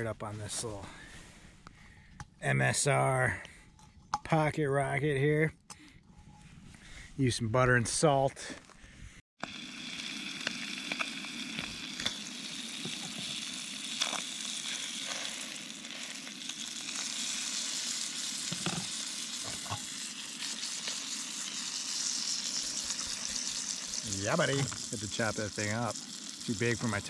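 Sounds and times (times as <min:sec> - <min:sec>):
fish sizzling in butter: 0:09.4 - 0:27.0.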